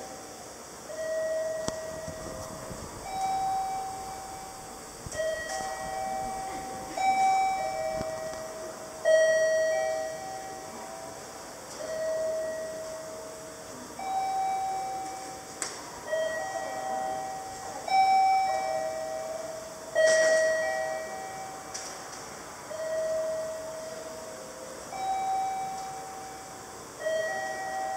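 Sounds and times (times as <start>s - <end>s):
two-note electronic chime: 0.9s - 21.8s, 22.7s - 27.9s.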